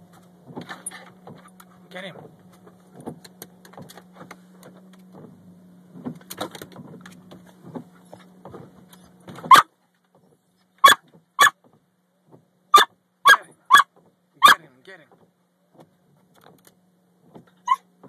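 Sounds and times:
low hum: 0.0s - 18.0s
small dog barking sharply: 9.5s - 9.7s, 10.8s - 11.6s, 12.7s - 14.6s.

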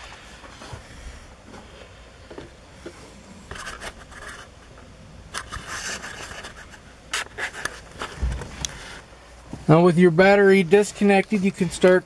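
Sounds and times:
camera handling scrapes and rustles: 3.5s - 4.6s, 5.3s - 9.1s.

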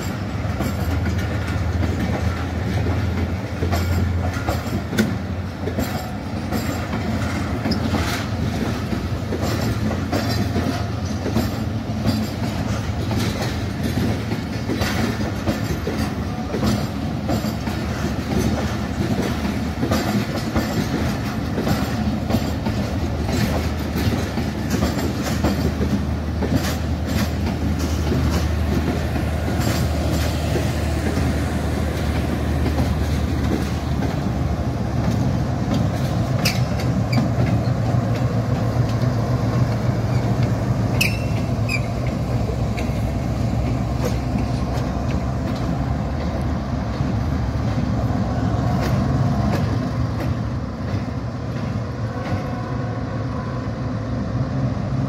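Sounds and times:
train wheels clacking over rail joints: 0.0s - 52.6s
train rumble: 0.0s - 55.0s
high wheel squeal: 40.0s - 42.1s.

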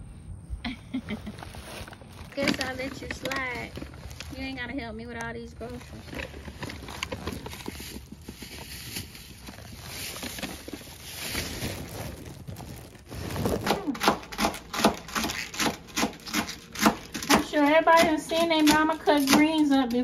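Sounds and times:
soft rustling: 0.7s - 13.9s.

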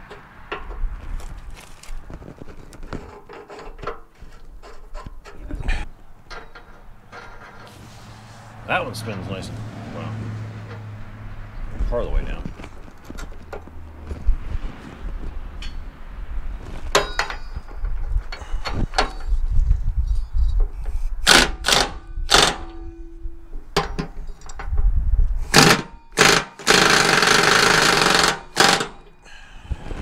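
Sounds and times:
impact wrench hammering: 21.2s - 23.0s, 25.5s - 29.2s.

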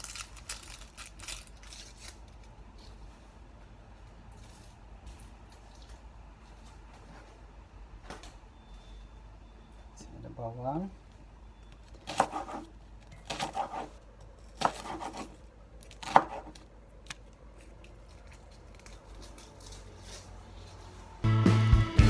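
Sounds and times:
knife chopping on wooden board: 12.0s - 14.0s, 14.6s - 15.4s, 16.0s - 16.6s
music with a beat: 21.2s - 22.0s.

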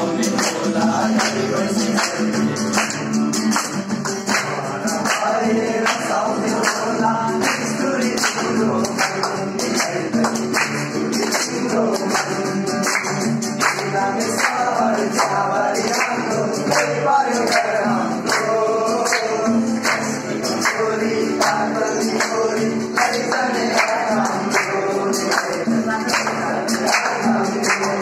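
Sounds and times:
acoustic guitar: 0.0s - 28.0s
men singing together: 0.0s - 28.0s.

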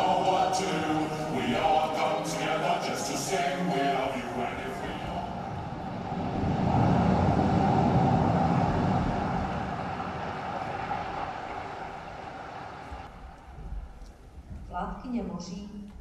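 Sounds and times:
rushing noise: 0.0s - 14.5s.

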